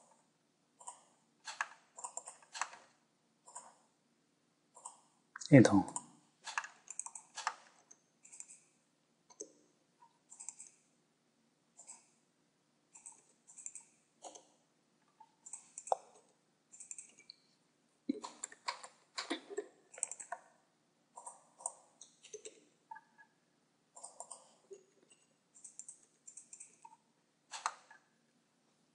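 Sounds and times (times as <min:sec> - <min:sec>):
mouse and keyboard clicking: 0:00.8 - 0:02.9, 0:05.9 - 0:08.7, 0:09.3 - 0:09.6, 0:10.3 - 0:10.8, 0:12.9 - 0:14.5, 0:15.4 - 0:17.4, 0:18.1 - 0:20.5, 0:21.2 - 0:23.2, 0:24.0 - 0:28.0.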